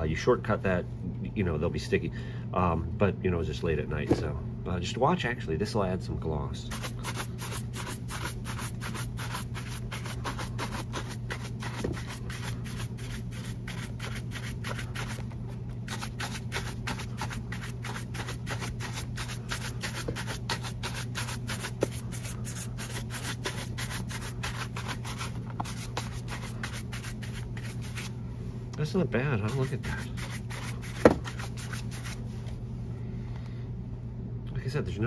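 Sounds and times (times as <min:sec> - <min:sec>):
shoe being buffed: 0:06.7 - 0:28.1, 0:29.4 - 0:32.2.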